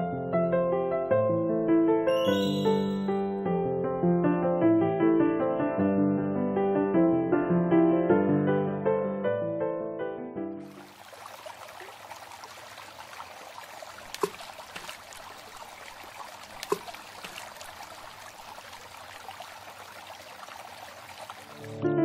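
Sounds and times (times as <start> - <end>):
water trickling: 10.6 - 21.8.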